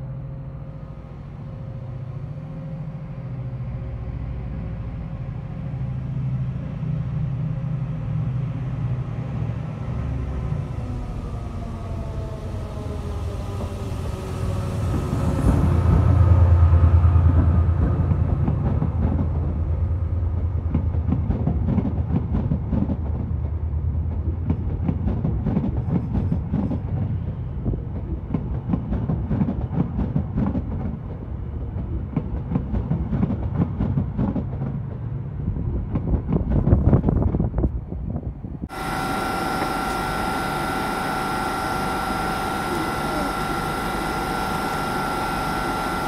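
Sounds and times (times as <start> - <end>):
locomotive engine hum: 0.0 - 46.0
train wheels clicking over track: 14.8 - 35.2.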